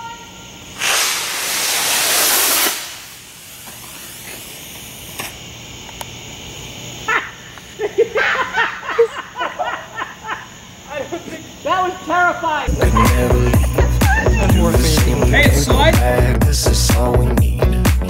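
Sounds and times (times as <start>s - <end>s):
rocket motor hissing: 0.7s - 6.8s
people exclaiming: 11.0s - 16.2s.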